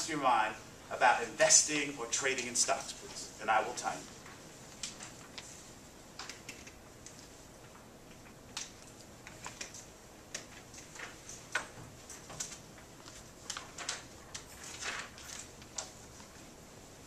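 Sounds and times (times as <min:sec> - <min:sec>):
paper rustling: 0:08.6 - 0:16.5.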